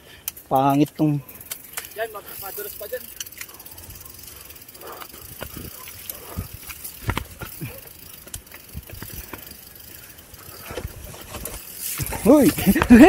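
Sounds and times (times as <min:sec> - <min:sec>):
bike frame rattling: 0:00.0 - 0:13.0
bike tyres rumbling on dirt: 0:02.2 - 0:13.0.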